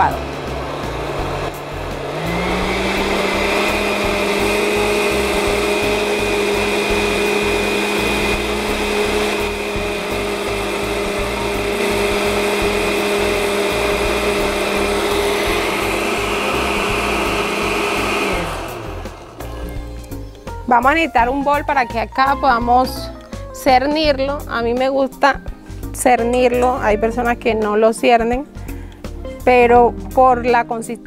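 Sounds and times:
blender running: 0:00.0 - 0:20.3.

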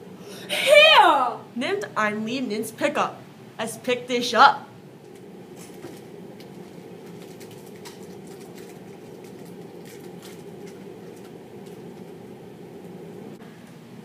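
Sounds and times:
low room hum: 0:00.0 - 0:14.0
faint crackles and clicks: 0:05.0 - 0:13.4.

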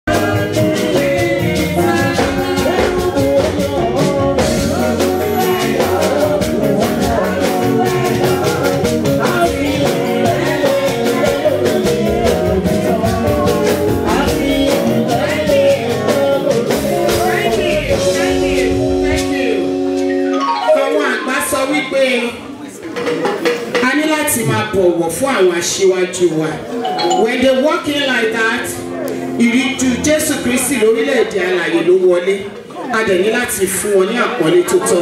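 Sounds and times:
person singing: 0:00.0 - 0:19.0, 0:20.3 - 0:22.0
steady drum beat: 0:00.1 - 0:19.4.

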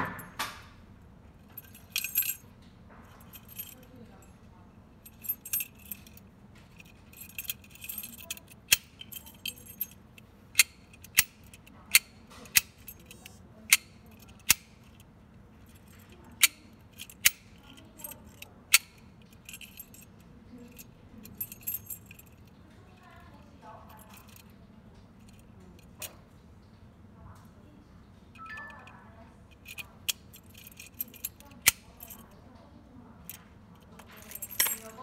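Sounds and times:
keys jangling: 0:01.4 - 0:02.4, 0:03.1 - 0:04.0, 0:05.0 - 0:15.0, 0:15.6 - 0:23.1, 0:29.5 - 0:32.3, 0:33.3 - 0:35.0
key turning in lock clicks: 0:05.1 - 0:15.1, 0:15.7 - 0:20.1, 0:29.6 - 0:32.2, 0:33.3 - 0:35.0.

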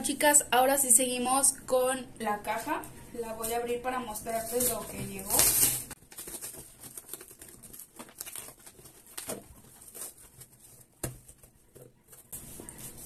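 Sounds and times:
cardboard flaps rustling and scraping: 0:04.3 - 0:13.0.

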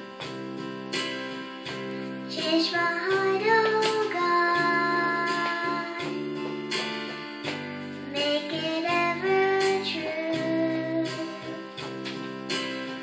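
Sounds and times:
electronic keyboard accompaniment: 0:00.0 - 0:13.0
girl singing: 0:02.3 - 0:06.4, 0:08.1 - 0:11.8.

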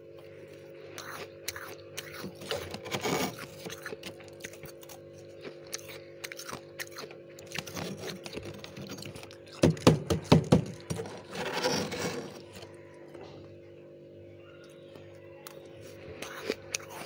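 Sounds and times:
freezer frost crunching: 0:00.0 - 0:13.7, 0:14.4 - 0:17.0
steady low hum: 0:00.0 - 0:17.0
metal spoon scraping frost: 0:02.2 - 0:04.0, 0:10.9 - 0:12.8.

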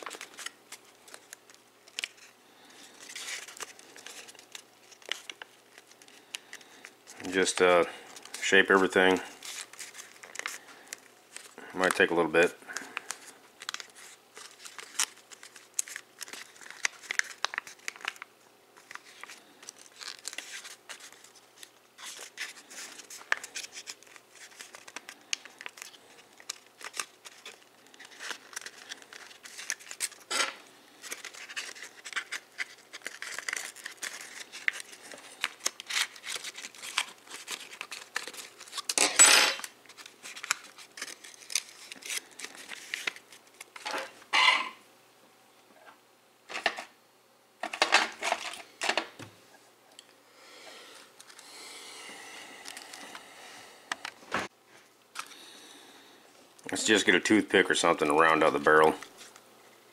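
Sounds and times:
foil paper crinkling: 0:00.0 - 0:39.0, 0:39.6 - 0:43.9.

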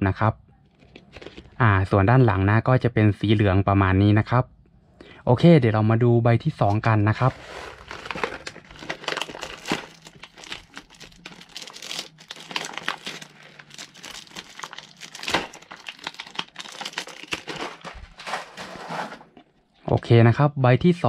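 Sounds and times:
plastic wrapper crackling: 0:07.2 - 0:19.5.

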